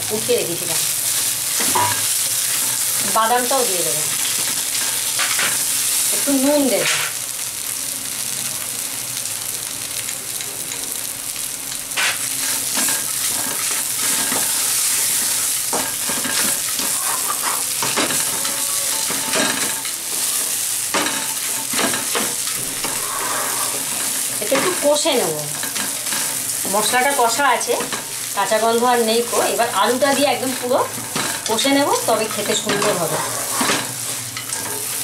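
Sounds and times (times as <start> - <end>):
food sizzling in oil: 0.0 - 35.0
wooden spatula scraping pan: 21.7 - 24.9, 32.3 - 34.8.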